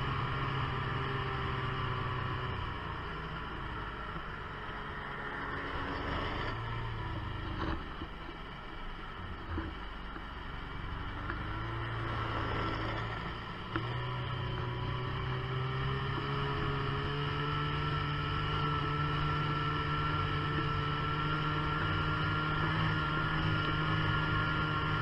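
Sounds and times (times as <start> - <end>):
muffled snowmobile engine: 0.0 - 25.0.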